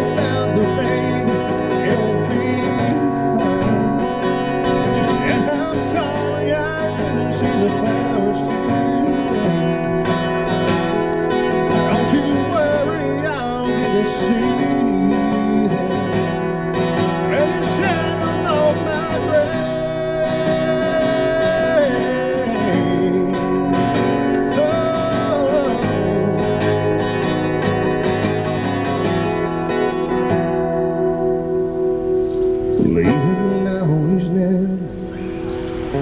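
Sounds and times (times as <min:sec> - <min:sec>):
man singing into a microphone: 0:00.0 - 0:10.4, 0:11.6 - 0:27.0, 0:32.8 - 0:35.1
acoustic guitar strumming: 0:00.0 - 0:36.0.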